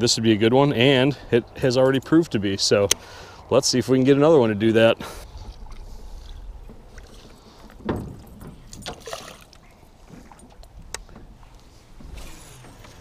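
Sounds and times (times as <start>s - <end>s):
water swishing against boat: 4.9s - 13.0s
thud: 7.8s - 9.1s.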